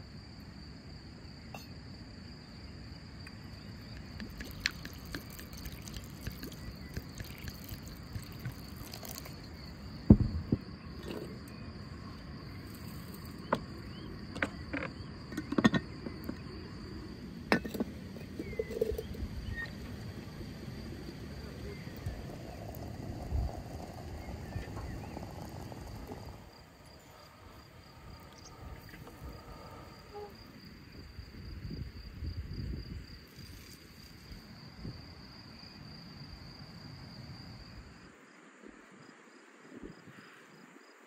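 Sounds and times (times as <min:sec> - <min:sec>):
insects chirping in a pulsing trill: 0:00.0 - 0:41.0
low rumbling noise: 0:05.0 - 0:31.7.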